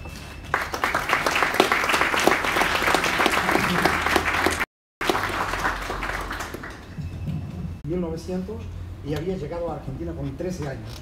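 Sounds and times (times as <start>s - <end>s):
audience applause: 0.5s - 6.9s.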